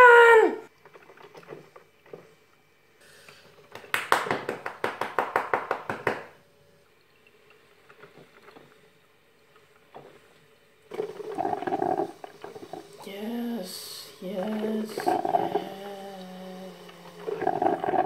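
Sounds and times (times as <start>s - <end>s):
coffee maker gurgling and sputtering: 0.7s - 2.3s, 10.9s - 18.0s.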